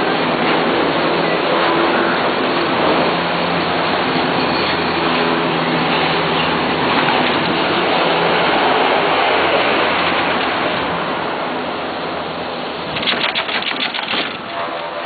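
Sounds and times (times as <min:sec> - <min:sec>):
rapid clattering clicks: 0:12.9 - 0:14.6.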